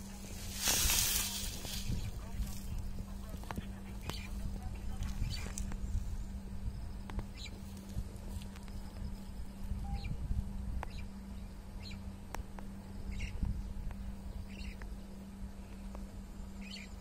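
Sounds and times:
low rumble: 0.0 - 16.8
bird chirping: 6.8 - 7.7, 8.6 - 10.2, 10.8 - 12.2, 12.9 - 15.2, 16.6 - 17.0.

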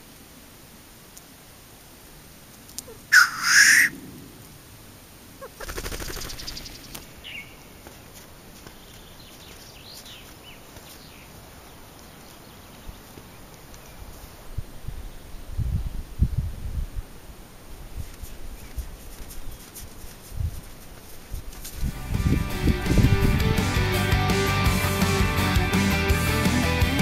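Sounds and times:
faint songbird chirps: 2.7 - 4.6, 5.4 - 16.4, 17.9 - 20.4
grouse hissing sneeze call: 2.9 - 3.9
buzzing fluttering rattle: 5.4 - 7.0.

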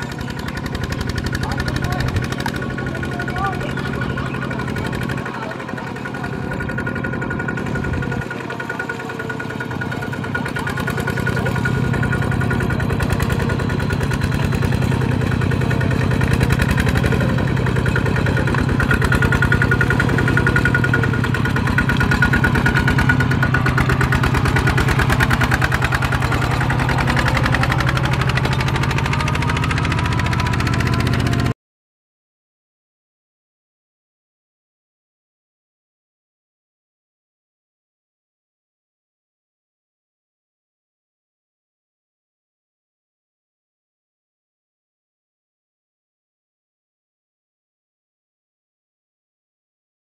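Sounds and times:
diesel tractor engine chugging: 0.0 - 31.6.

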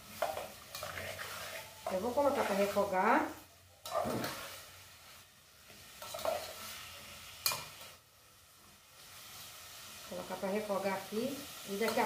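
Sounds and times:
spoon stirring and scraping pot: 0.0 - 3.0, 3.8 - 4.7, 5.7 - 7.9
vegetables sizzling in oil: 0.0 - 12.0.

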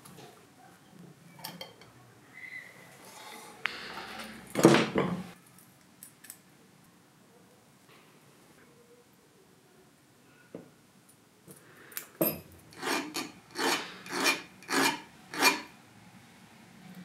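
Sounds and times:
file rasping on metal: 12.7 - 15.7.

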